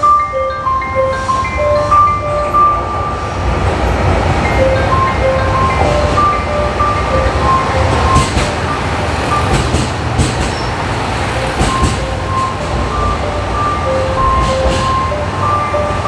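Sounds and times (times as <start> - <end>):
electronic chime melody: 0.0 - 3.2, 4.5 - 8.2
diesel railcar engine rumbling: 0.0 - 16.0
train wheels clacking over rail joints: 3.9 - 16.0.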